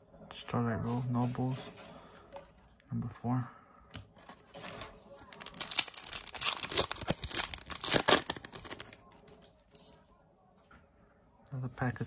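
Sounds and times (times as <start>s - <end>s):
foil wrapper tearing and crinkling: 4.6s - 9.0s.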